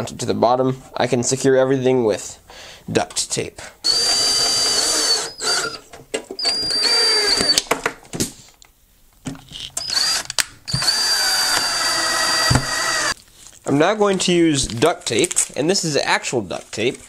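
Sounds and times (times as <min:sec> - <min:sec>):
cordless drill motor whining: 0:03.8 - 0:05.8, 0:06.4 - 0:07.6, 0:09.8 - 0:13.2.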